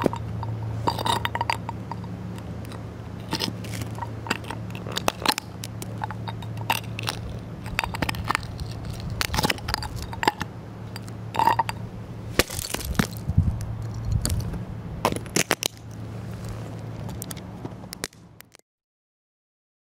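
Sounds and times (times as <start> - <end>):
seashell crunching underfoot: 0.0 - 11.7, 12.3 - 18.6
steady low hum: 0.0 - 18.5.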